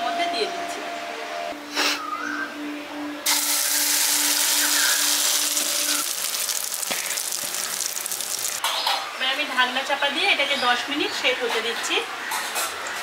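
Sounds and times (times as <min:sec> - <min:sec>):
batter sizzling in hot oil: 0:03.3 - 0:08.6.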